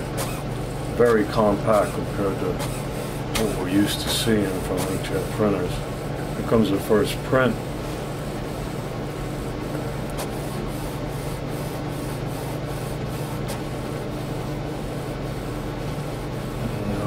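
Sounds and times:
inkjet printer whirring: 0.0s - 17.0s
printer sharp clicks: 0.1s - 5.6s.

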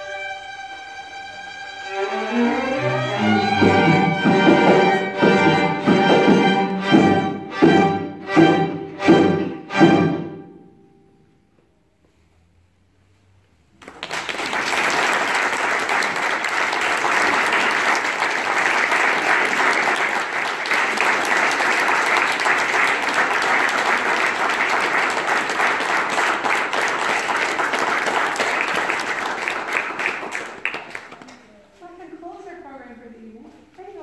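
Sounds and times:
concert audience applauding: 13.8s - 31.5s.

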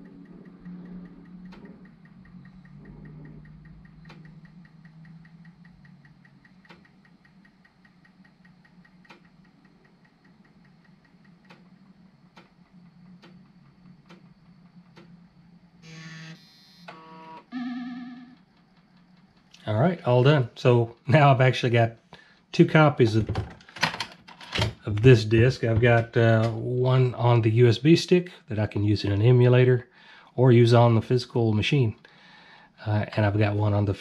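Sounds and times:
disk drive motor hum: 0.0s - 19.6s
short buzzing tones: 15.8s - 18.5s.

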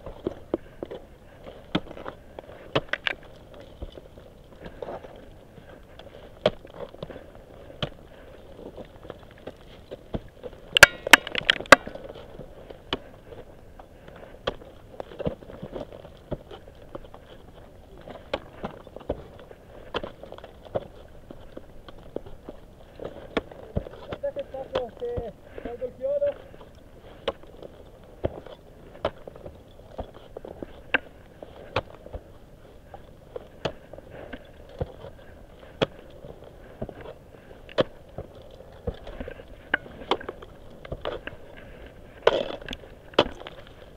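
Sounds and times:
ice axes striking ice: 10.1s - 12.2s, 42.2s - 43.7s.

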